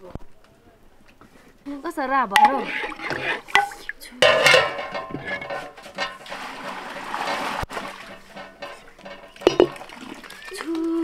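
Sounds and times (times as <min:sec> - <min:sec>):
water splashing into metal pot: 0:02.3 - 0:11.0.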